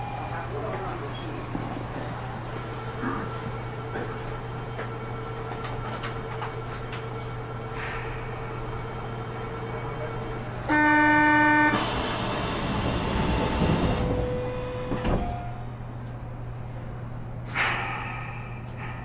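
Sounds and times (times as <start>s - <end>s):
tram running noise: 0.0s - 19.0s
door warning buzzer: 10.7s - 12.0s.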